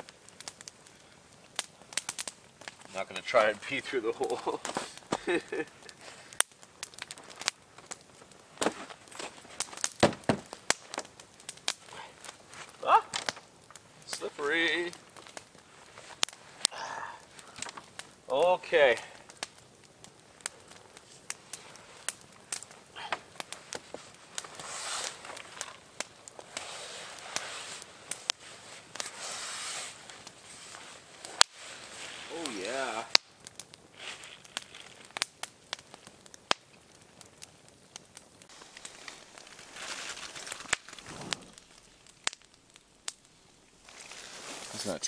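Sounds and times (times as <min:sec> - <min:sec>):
campfire crackling and popping: 0:00.0 - 0:45.0
tent fabric rustling: 0:14.5 - 0:17.1, 0:23.5 - 0:33.0, 0:34.0 - 0:35.0, 0:38.5 - 0:42.0, 0:43.8 - 0:45.0
person moving in snow: 0:23.5 - 0:33.0, 0:38.5 - 0:41.8, 0:43.8 - 0:45.0.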